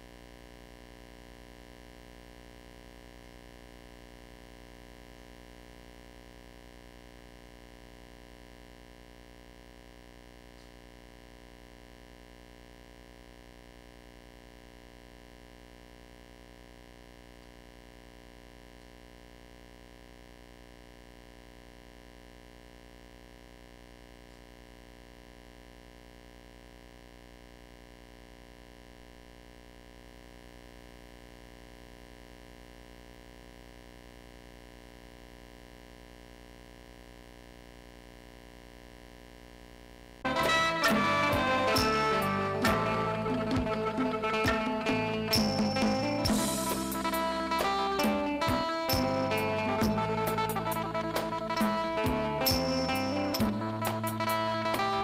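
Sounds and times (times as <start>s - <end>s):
faint electrical hum and hiss: 0.0s - 55.0s.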